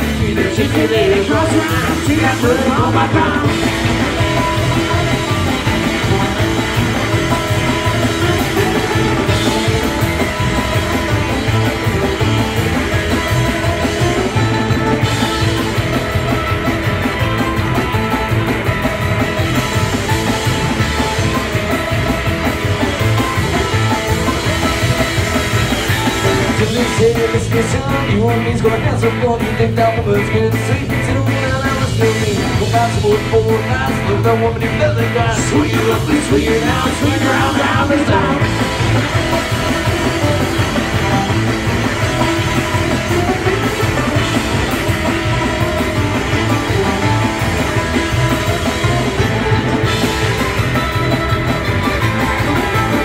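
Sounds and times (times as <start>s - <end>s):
man singing: 0.0s - 5.6s, 26.2s - 39.0s
drum kit fast beat: 0.0s - 53.0s
electric guitar: 0.0s - 53.0s
plucked string instrument: 0.0s - 53.0s.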